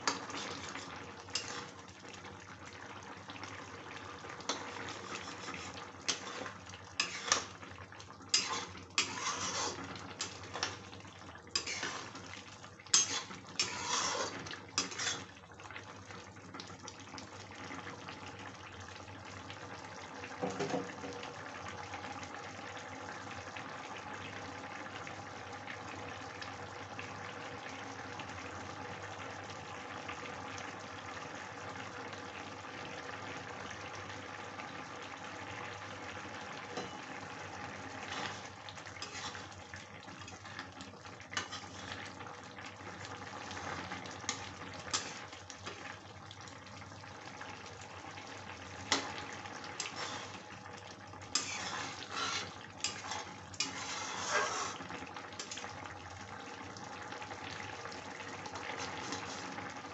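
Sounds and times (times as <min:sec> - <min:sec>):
metal spatula scraping a pot: 0:00.0 - 0:01.8, 0:04.5 - 0:07.6, 0:08.3 - 0:10.8, 0:11.5 - 0:12.3, 0:12.9 - 0:15.3, 0:38.0 - 0:39.6, 0:41.3 - 0:42.1, 0:44.3 - 0:45.9, 0:48.9 - 0:50.6, 0:51.3 - 0:55.7, 0:58.6 - 0:59.6
gravy bubbling: 0:35.4 - 0:59.9.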